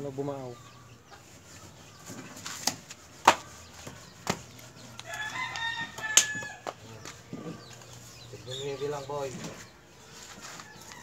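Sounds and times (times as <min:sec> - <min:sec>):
blade striking wooden log: 0:02.6 - 0:03.5
rooster crowing: 0:05.0 - 0:06.7.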